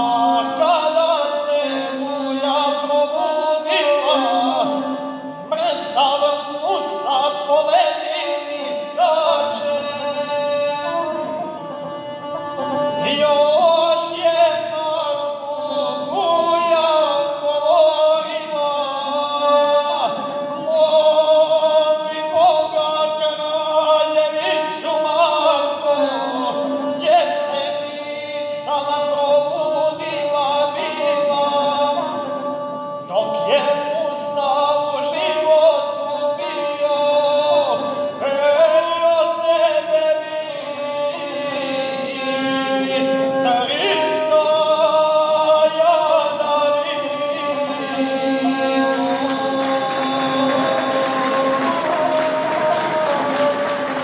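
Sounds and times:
man singing: 0.0s - 54.0s.

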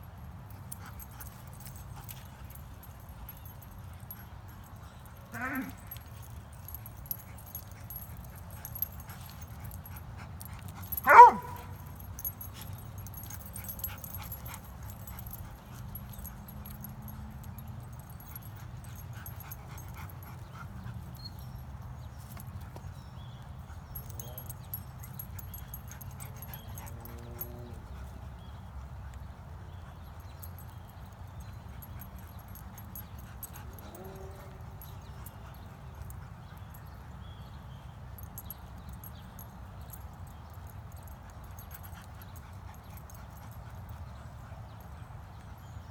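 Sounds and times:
dog barking: 11.0s - 11.7s.

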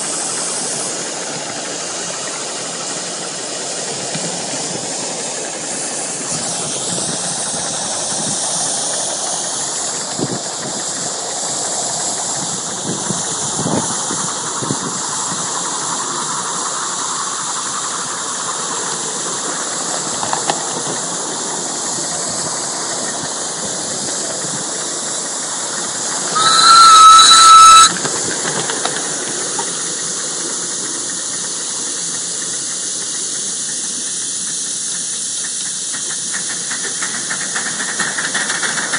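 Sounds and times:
steam locomotive hissing: 0.0s - 38.9s
steam whistle blast: 26.2s - 28.2s.

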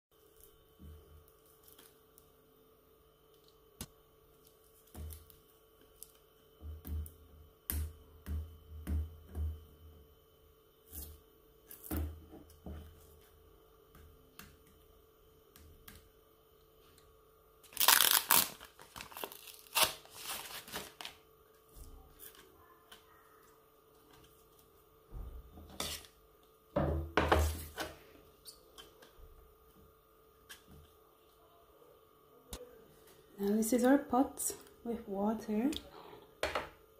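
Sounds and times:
paper label tearing: 17.7s - 21.1s.

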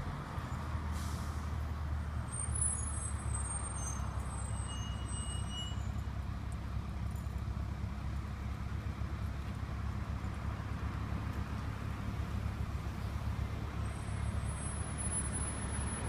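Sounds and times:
bus diesel engine rumbling: 0.0s - 16.0s
faint high squeals: 2.4s - 6.0s.

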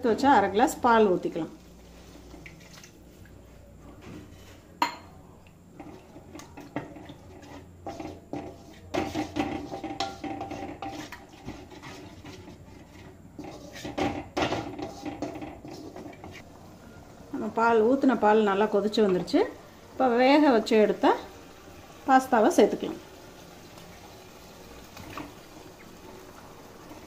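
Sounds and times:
spatula scraping and knocking metal pan: 5.8s - 16.4s.

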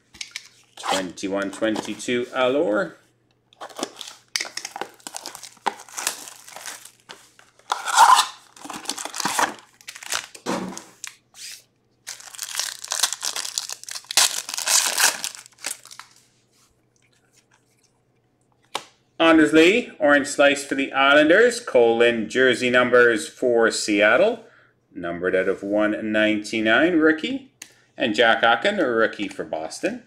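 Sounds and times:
packaging tearing and crinkling: 3.6s - 16.2s.

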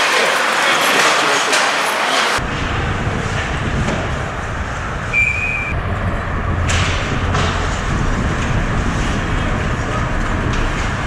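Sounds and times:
crowd and on-ice noise: 0.0s - 11.0s
low rumble: 2.4s - 11.0s.

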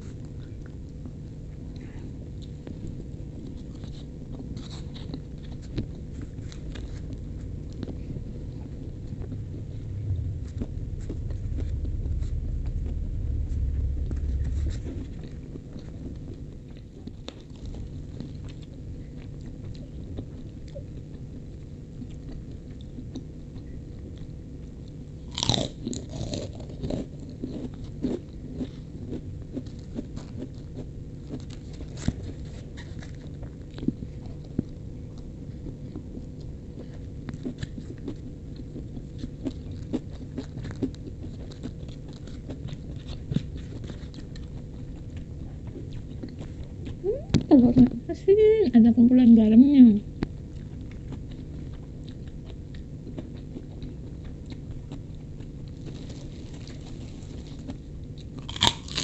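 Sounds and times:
chewing: 0.0s - 47.9s, 50.1s - 59.0s
low rumble: 6.4s - 27.7s.

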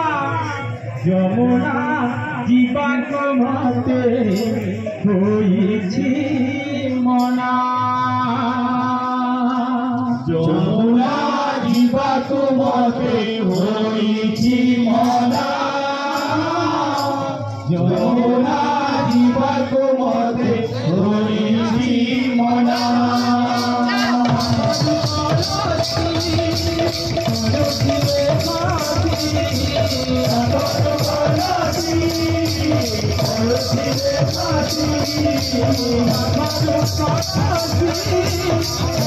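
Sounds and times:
men singing devotional song: 0.0s - 39.0s
barrel drum: 22.8s - 39.0s.

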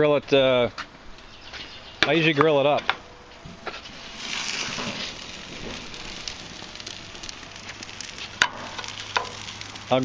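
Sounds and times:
burgers sizzling on a grill: 3.1s - 10.0s.

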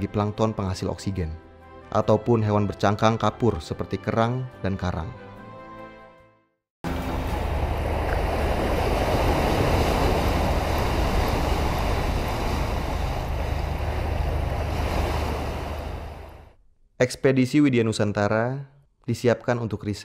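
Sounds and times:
sea water rushing and splashing: 6.8s - 16.5s
steady low rumble: 6.9s - 16.5s.

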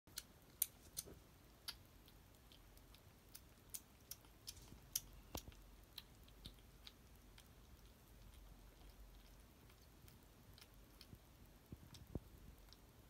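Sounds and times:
kitten crunching dry food: 0.1s - 13.0s.

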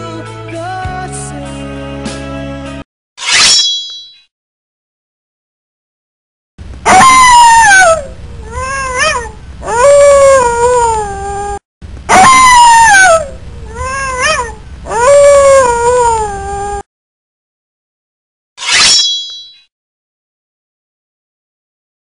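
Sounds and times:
cat meowing: 8.4s - 9.8s, 13.7s - 15.1s.

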